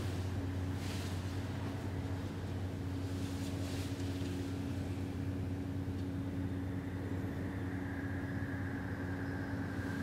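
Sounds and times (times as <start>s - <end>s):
ship engines droning: 0.0s - 10.0s
faint high whine: 3.9s - 10.0s.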